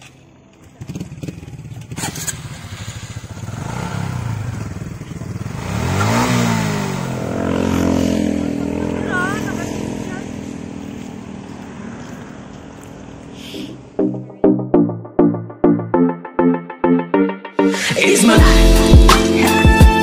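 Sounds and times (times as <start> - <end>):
small motorcycle engine revving: 0.6 - 11.0.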